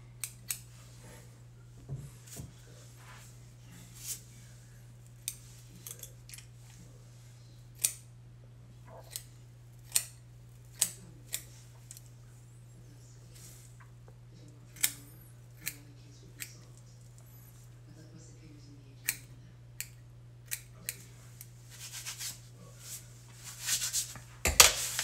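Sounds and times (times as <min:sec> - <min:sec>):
scissors snipping beard: 0:00.2 - 0:00.6, 0:07.8 - 0:08.1, 0:09.0 - 0:12.0, 0:14.7 - 0:16.6, 0:19.0 - 0:21.0.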